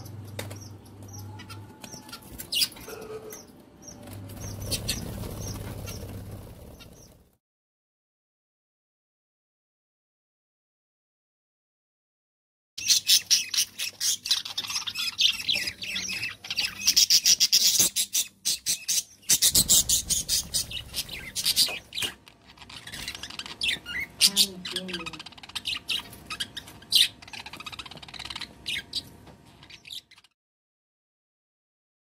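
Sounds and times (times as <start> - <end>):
budgerigar chicks squawking: 0.0 - 7.2, 12.8 - 30.3.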